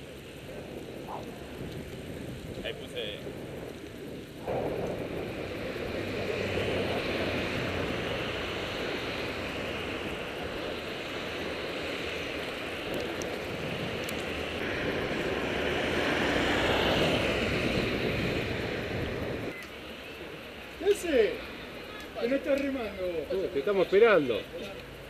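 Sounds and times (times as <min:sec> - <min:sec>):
wind rushing on microphone: 0:00.0 - 0:19.6.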